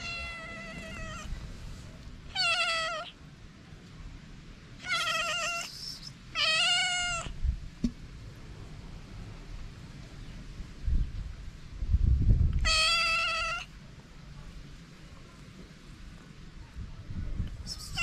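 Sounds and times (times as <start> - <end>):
cat meowing: 0.0 - 1.3, 2.3 - 3.2, 4.8 - 7.4, 12.6 - 13.7.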